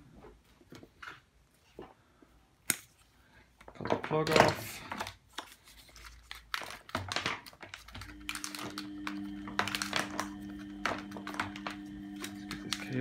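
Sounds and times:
plastic parts clicking and knocking: 3.6s - 5.5s, 6.4s - 10.2s
low two-tone hum: 8.0s - 13.0s.

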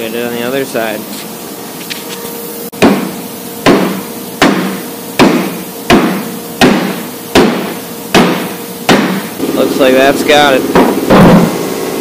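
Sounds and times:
hammer striking metal: 2.8s - 9.3s.

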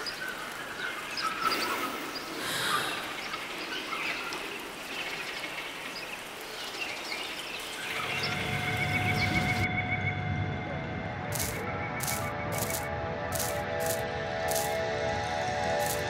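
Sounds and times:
soft forest hiss: 0.0s - 8.2s, 11.3s - 14.8s.

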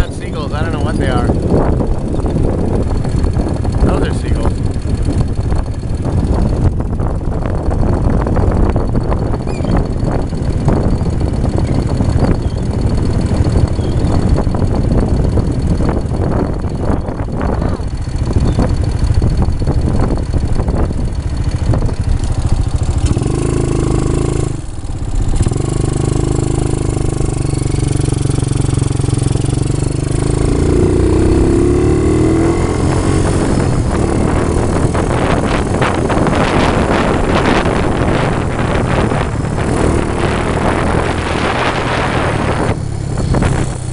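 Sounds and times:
quad bike engine running: 0.0s - 43.9s.

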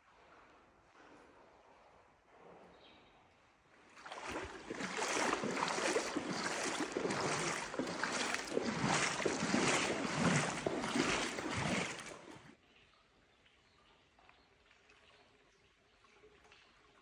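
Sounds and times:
footsteps splashing in shallow water: 3.9s - 12.6s.

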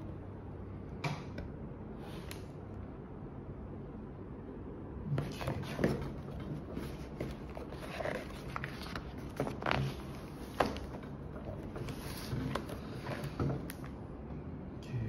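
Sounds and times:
page swishes: 5.2s - 13.8s
paper pages rustling: 5.2s - 14.0s.

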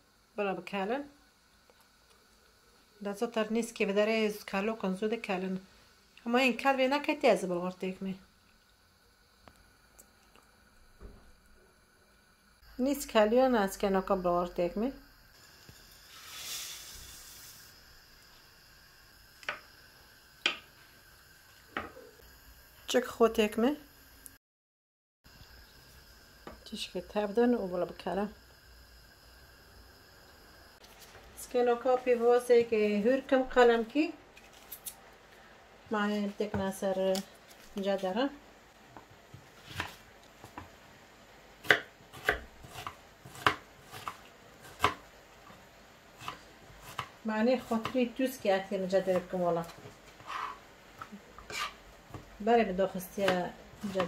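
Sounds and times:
dry grain pouring into liquid: 15.5s - 17.6s.

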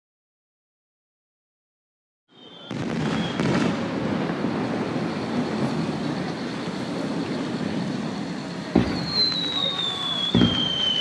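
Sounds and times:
crowd murmur: 2.6s - 11.0s.

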